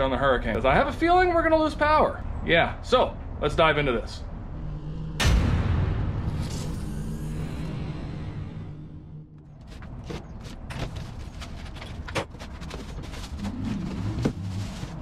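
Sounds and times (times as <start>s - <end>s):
music sting: 4.5s - 9.5s
cardboard box and foam handled: 9.7s - 15.0s.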